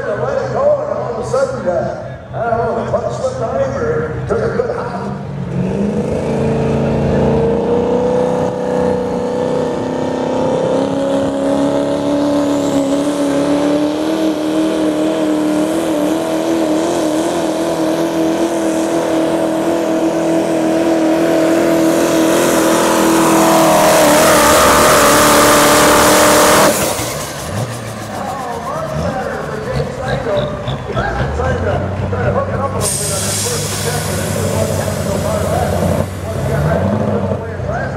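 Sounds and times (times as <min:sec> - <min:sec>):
diesel truck engine at full throttle: 0:00.0 - 0:37.9
rising hiss: 0:32.8 - 0:36.6.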